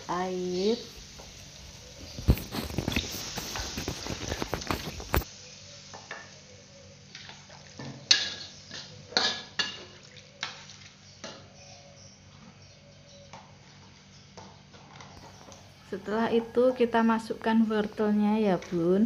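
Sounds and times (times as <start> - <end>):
water sizzling in hot wok: 0.0 - 9.7
metal spatula scraping wok: 2.5 - 5.2.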